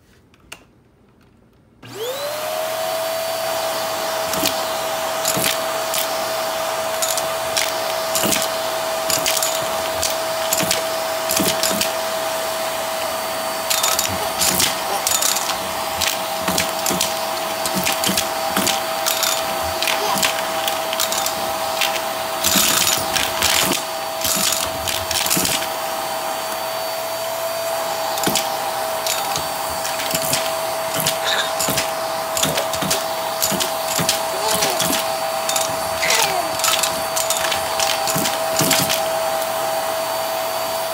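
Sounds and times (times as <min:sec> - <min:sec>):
vacuum cleaner motor whine: 0:01.8 - 0:40.9
debris rattling up vacuum tube: 0:06.8 - 0:12.1, 0:13.6 - 0:25.7, 0:28.1 - 0:39.4.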